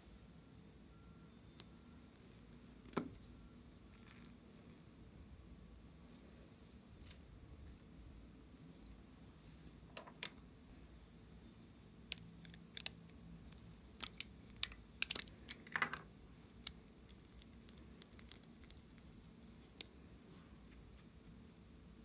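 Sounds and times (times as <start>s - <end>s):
plastic tubes clicking: 12.1s - 16.8s.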